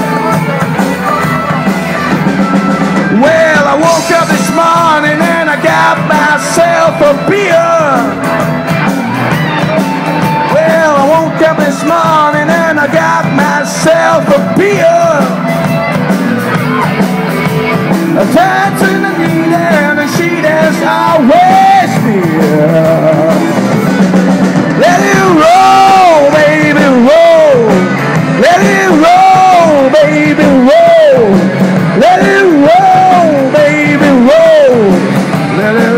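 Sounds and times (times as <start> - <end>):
bass guitar: 0.0 - 35.9
drums: 0.0 - 35.9
electric guitar: 0.0 - 35.9
man singing: 3.0 - 8.5, 10.2 - 15.8, 18.0 - 23.8, 24.6 - 35.9.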